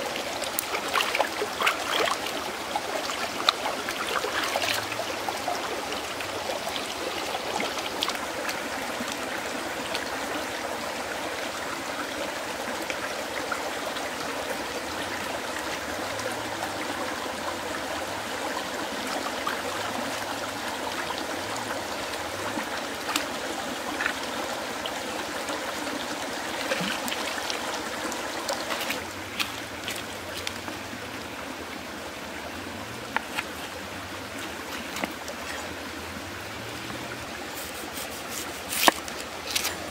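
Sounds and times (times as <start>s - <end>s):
stream flowing over rocks: 0.0s - 39.9s
stones clicking and knocking: 37.6s - 39.8s.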